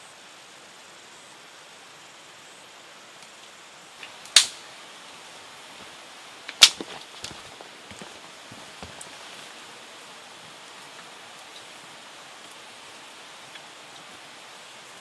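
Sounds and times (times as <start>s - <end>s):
background hiss: 0.0s - 15.0s
wood fire crackling: 3.1s - 15.0s
fire snapping and popping: 4.0s - 4.7s, 5.7s - 9.8s.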